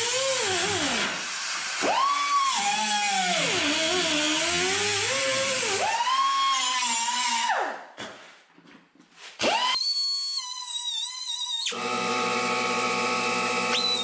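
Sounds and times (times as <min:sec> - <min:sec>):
pneumatic cut-off wheel cutting metal: 0:11.5 - 0:14.0.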